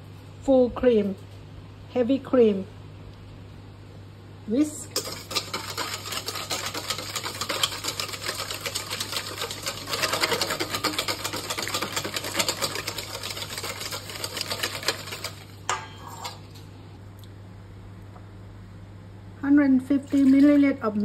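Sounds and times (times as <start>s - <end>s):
whisk clicking against metal bowl: 4.9s - 15.6s.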